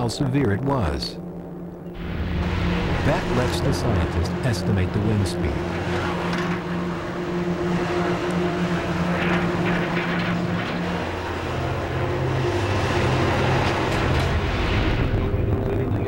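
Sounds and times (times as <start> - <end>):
excavator diesel engine running: 1.9 - 16.0.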